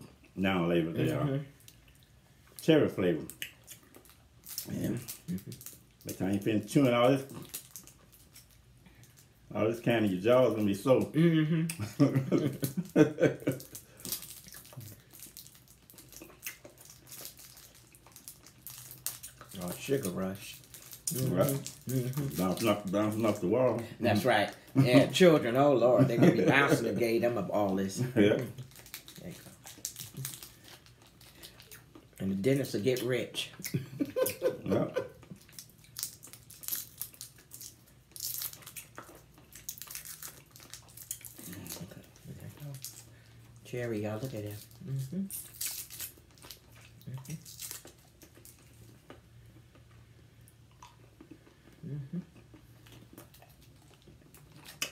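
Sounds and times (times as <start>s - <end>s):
candy wrapper crinkling: 3.2s - 9.4s, 12.4s - 33.1s, 35.3s - 48.9s
person speaking: 19.5s - 28.6s
wet mouth clicks of chewing: 44.7s - 54.9s.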